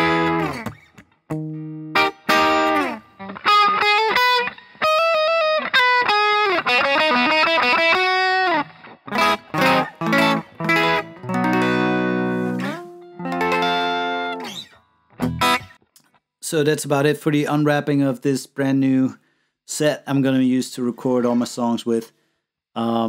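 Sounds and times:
electric guitar playing: 0.0 - 15.9.

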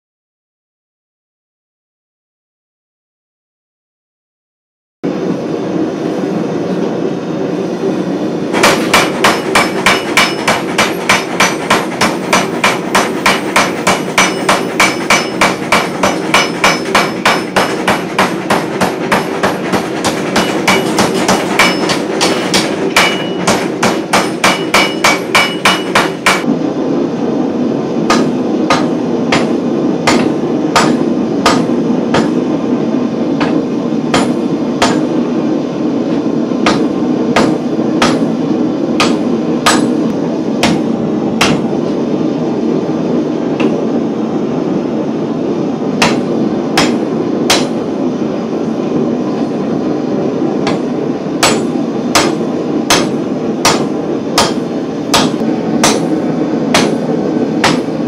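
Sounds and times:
steady rushing noise: 5.0 - 58.0
hand hammer striking on anvil: 8.6 - 26.4, 39.0 - 40.0, 46.8 - 47.7, 51.4 - 56.1, 56.7 - 57.0, 57.6 - 57.9
power hammer ringing blows: 8.6 - 26.4.

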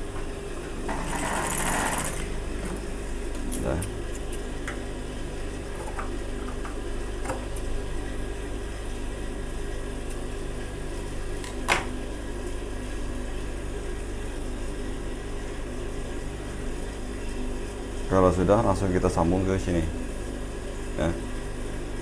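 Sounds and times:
sewing machine motor humming: 0.9 - 2.8.

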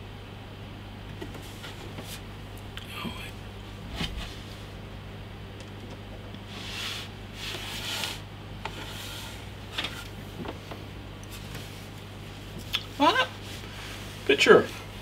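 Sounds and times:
steady low hum: 0.0 - 15.0
rubbing and rustling: 1.2 - 2.3, 6.5 - 15.0.

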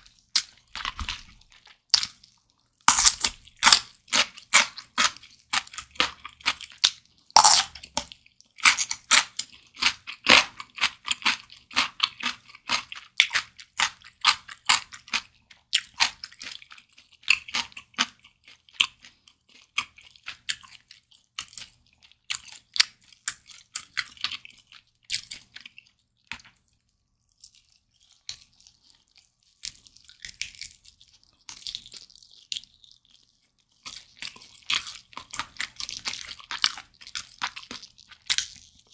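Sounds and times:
crunchy chewing: 0.0 - 38.9
wet mouth sounds: 6.9 - 8.2.

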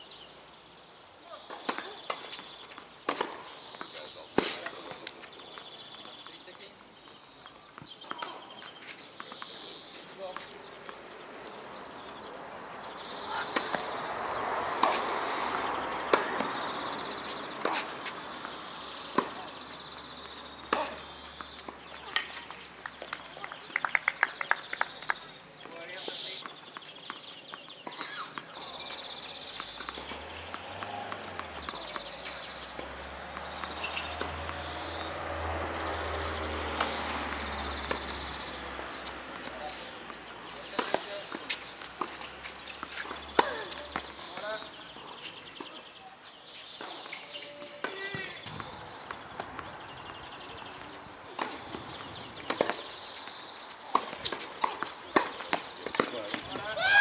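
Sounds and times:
tennis balls knocking: 1.4 - 45.8, 46.8 - 56.8
footsteps on hard court: 25.6 - 45.8, 46.5 - 56.8
ball bouncing on hard court: 29.5 - 35.4, 47.8 - 53.3.

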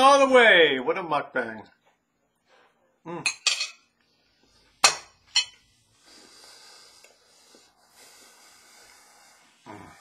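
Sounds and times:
fork and plate clinking: 3.3 - 3.8, 4.9 - 5.6
breathing through nose: 5.9 - 10.0.

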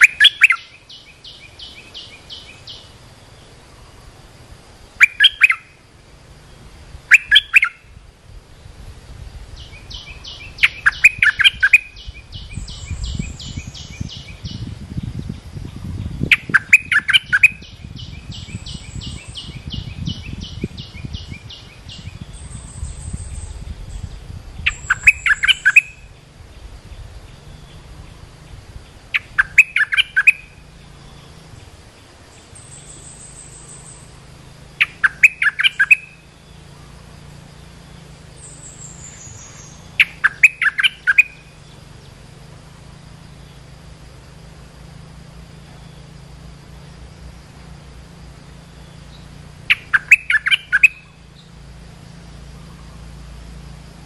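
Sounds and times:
fast bird trill: 0.0 - 2.9, 5.0 - 5.8, 7.1 - 7.9, 9.5 - 26.3, 27.3 - 31.6, 32.4 - 42.5, 48.5 - 51.6
bird lure call: 0.0 - 3.0, 4.9 - 5.8, 7.0 - 8.0, 9.6 - 14.7, 15.7 - 47.0, 47.7 - 53.6.

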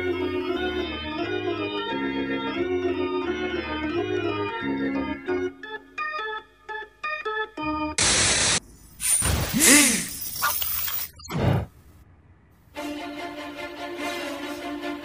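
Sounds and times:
organ music: 0.0 - 8.0, 12.8 - 15.0.

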